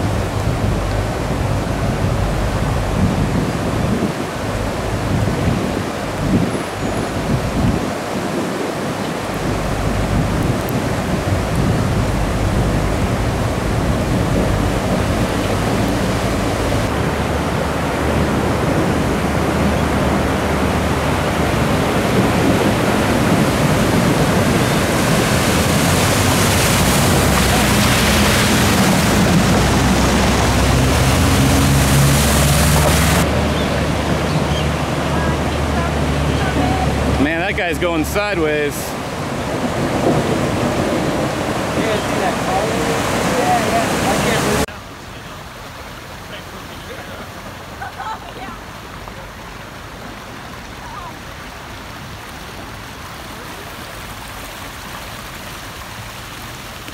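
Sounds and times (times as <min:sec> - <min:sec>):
floodwater rushing: 0:00.0 - 0:56.9
low engine hum: 0:00.0 - 0:56.9
tyres splashing through water: 0:00.0 - 0:56.9.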